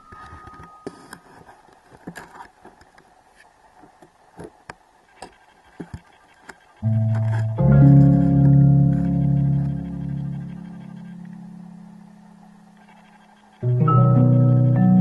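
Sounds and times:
low hiss: 0:00.0 - 0:15.0
music with sustained notes: 0:06.8 - 0:15.0.

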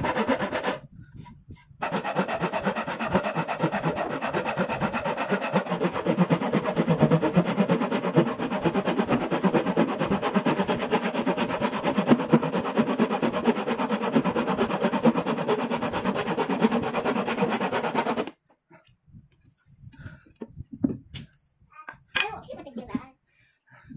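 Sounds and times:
hand saw cutting wood: 0:00.0 - 0:18.4.

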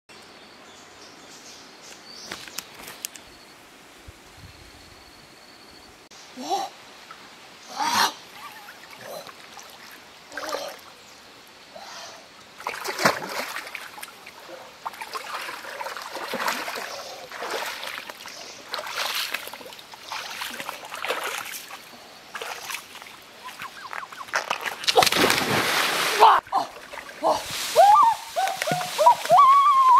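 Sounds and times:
water splashing from wading: 0:12.6 - 0:29.4.

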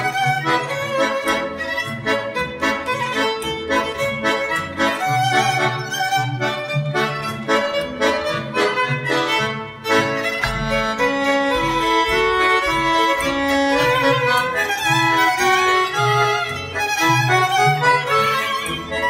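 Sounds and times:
instrumental dance music: 0:00.0 - 0:19.0.

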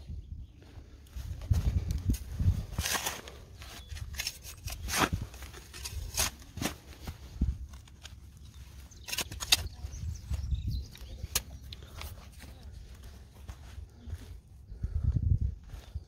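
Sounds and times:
spade digging into dry soil: 0:01.7 - 0:10.2.

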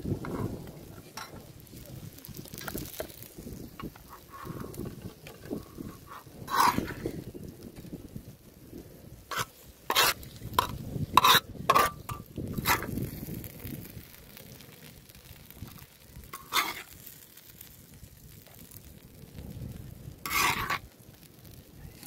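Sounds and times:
faint food sizzle: 0:00.0 - 0:22.0
metal spoon scraping a griddle: 0:00.2 - 0:01.5, 0:02.5 - 0:07.3, 0:09.3 - 0:13.0, 0:15.7 - 0:17.2, 0:20.2 - 0:20.9.

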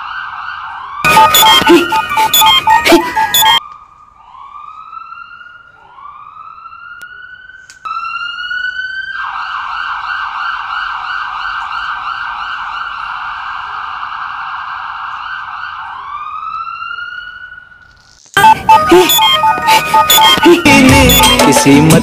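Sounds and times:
emergency vehicle siren: 0:00.0 - 0:17.8, 0:18.4 - 0:22.0
loud music: 0:01.1 - 0:03.6, 0:18.4 - 0:22.0.

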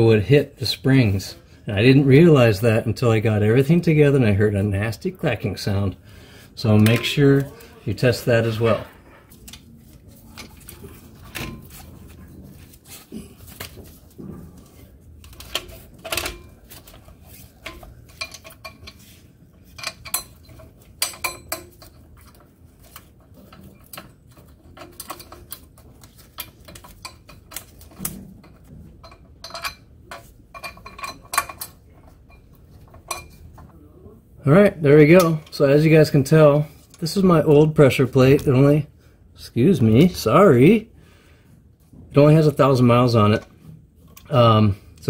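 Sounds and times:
metal parts clinking and knocking: 0:15.2 - 0:33.7.

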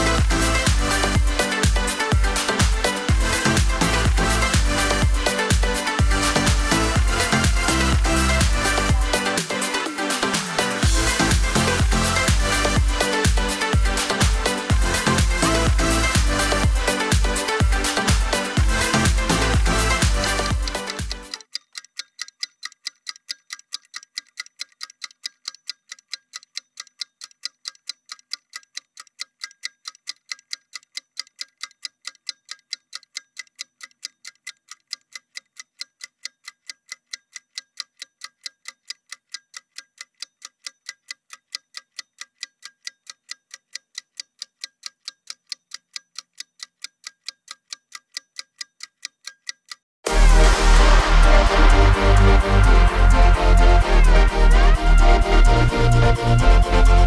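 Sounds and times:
electronic dance music: 0:00.0 - 0:21.4, 0:50.0 - 0:57.0
clock ticking: 0:00.0 - 0:57.0.

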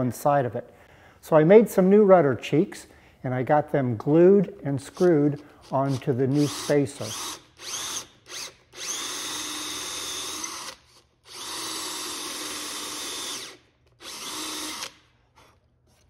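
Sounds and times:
cordless drill boring: 0:04.9 - 0:15.1.

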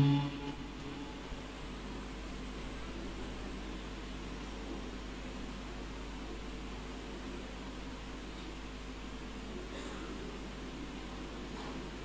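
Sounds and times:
low hum: 0:00.0 - 0:02.4.

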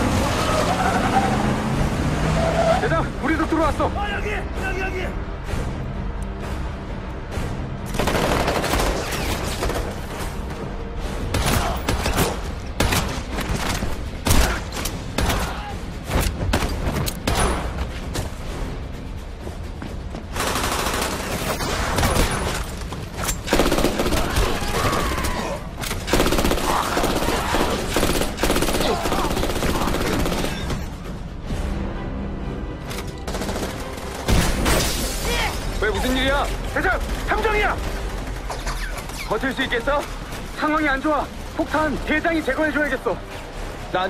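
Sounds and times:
film music score: 0:00.0 - 0:44.0
gunfire bursts: 0:07.9 - 0:10.0, 0:23.4 - 0:25.1, 0:26.0 - 0:30.7.

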